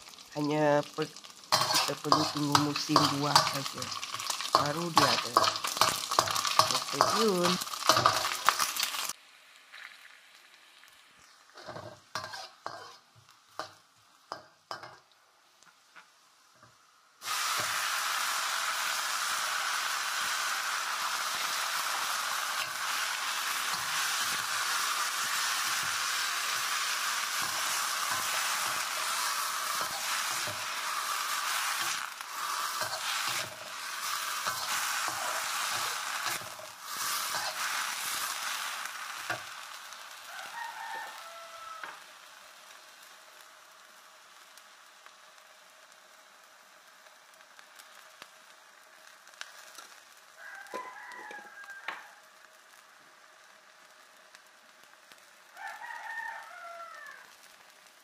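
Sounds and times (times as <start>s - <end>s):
vegetables sizzling in hot oil: 0.0s - 58.0s
metal spatula scraping a wok: 1.5s - 9.1s, 11.6s - 13.8s, 21.2s - 39.5s.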